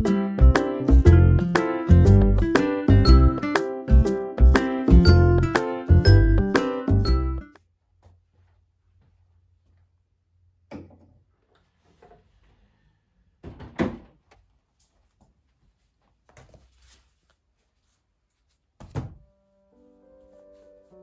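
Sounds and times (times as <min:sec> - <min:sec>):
fabric rustling: 0:14.5 - 0:19.3
knocks and thuds on a desk: 0:18.8 - 0:19.2.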